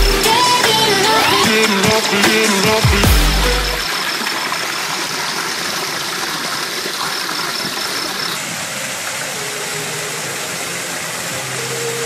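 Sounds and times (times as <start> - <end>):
waterfall splashing into pool: 3.8 - 12.0.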